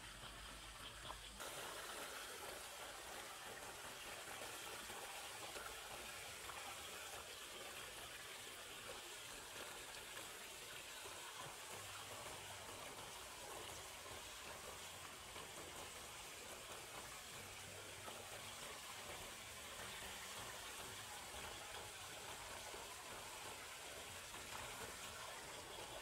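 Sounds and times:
water rushing: 0:01.4 - 0:26.0.

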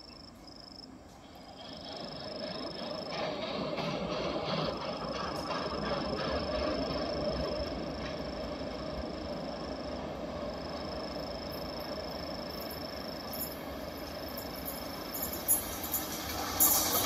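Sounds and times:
train rumbling: 0:00.0 - 0:17.0.

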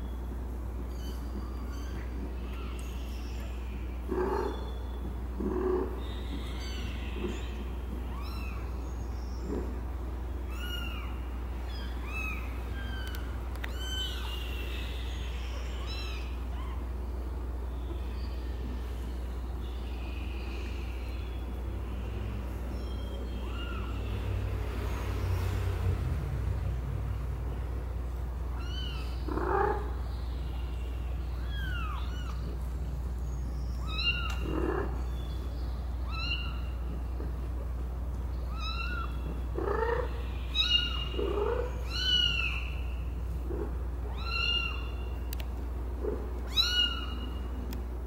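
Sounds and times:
steady low hum: 0:00.0 - 0:48.0
kittens mewing: 0:31.3 - 0:32.6, 0:46.5 - 0:47.3.

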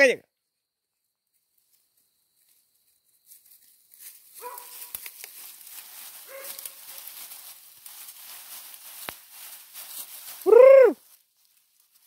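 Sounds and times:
rustling through dry brush: 0:01.2 - 0:12.0.

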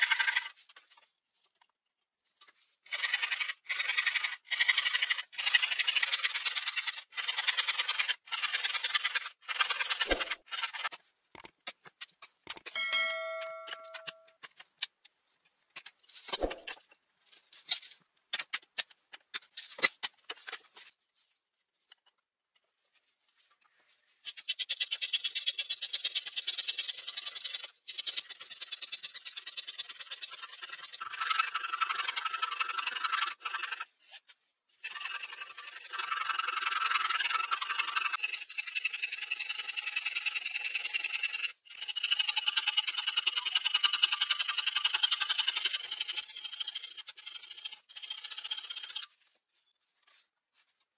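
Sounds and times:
file rasping over wood: 0:02.8 - 0:11.0, 0:24.3 - 0:34.2, 0:34.8 - 0:49.1
metallic ring: 0:12.7 - 0:14.4.

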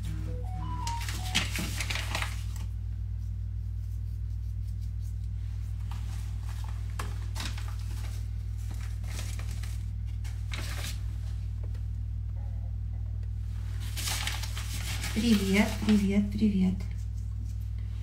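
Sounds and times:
steady low hum: 0:00.0 - 0:18.0
plastic packet crinkling: 0:00.8 - 0:02.7, 0:06.5 - 0:11.0, 0:13.9 - 0:16.1.

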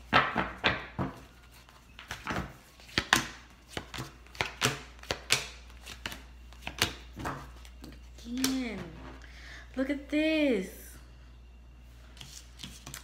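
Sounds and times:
cards being shuffled: 0:01.5 - 0:08.6, 0:12.2 - 0:13.0.

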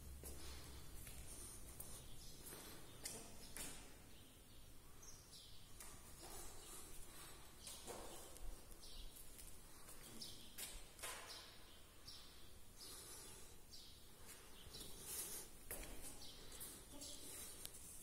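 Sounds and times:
faint background ambience: 0:00.0 - 0:18.0.

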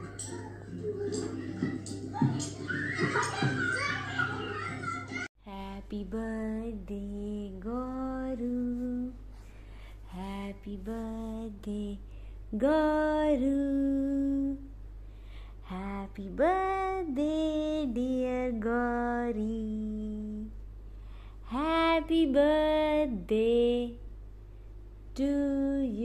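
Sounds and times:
woman singing slow tune: 0:05.4 - 0:09.3, 0:10.0 - 0:14.8, 0:15.6 - 0:20.8, 0:21.4 - 0:24.1, 0:25.1 - 0:26.0
steady low hum: 0:05.4 - 0:26.0.

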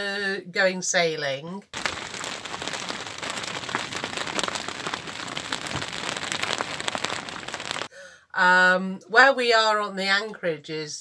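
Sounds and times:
choppy water splashing: 0:01.8 - 0:07.9.

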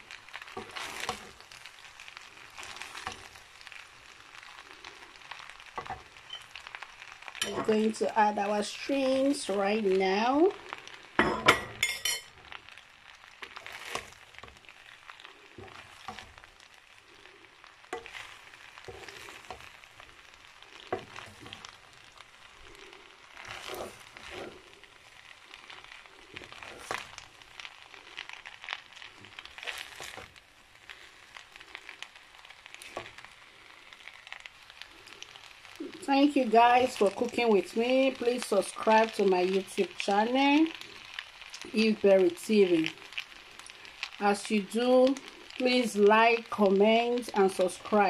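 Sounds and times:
food sizzling in a frying pan: 0:00.0 - 0:48.0
spatula scraping and tapping pan: 0:00.4 - 0:01.5, 0:05.7 - 0:06.5, 0:07.4 - 0:07.8, 0:13.4 - 0:14.7, 0:17.9 - 0:19.8, 0:20.8 - 0:21.8, 0:23.4 - 0:24.6.

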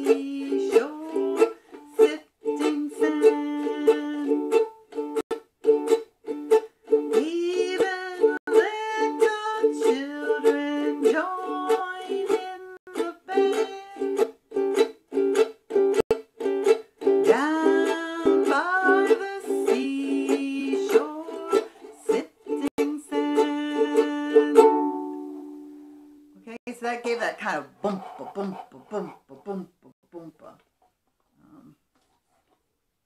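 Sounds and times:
woman singing: 0:00.0 - 0:04.7, 0:07.0 - 0:14.2, 0:17.2 - 0:25.2
muted percussive strum chops: 0:00.0 - 0:25.6
ukulele strumming: 0:00.0 - 0:26.3.

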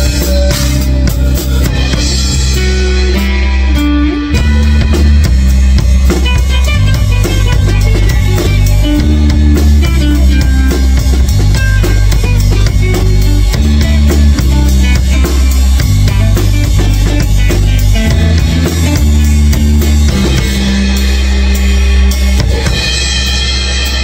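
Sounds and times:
drum kit beat: 0:00.0 - 0:24.0
electric and acoustic guitars: 0:00.0 - 0:24.0
rock band playing live: 0:00.0 - 0:24.0.

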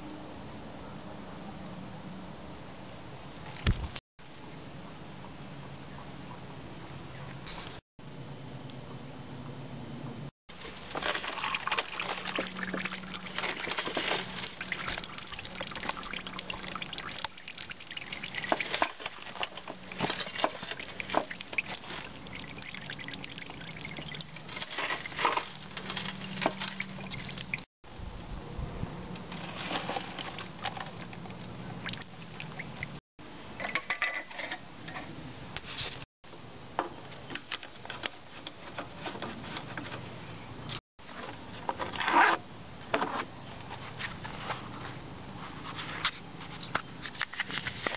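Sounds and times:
oil trickling into plastic pan: 0:10.7 - 0:27.6.

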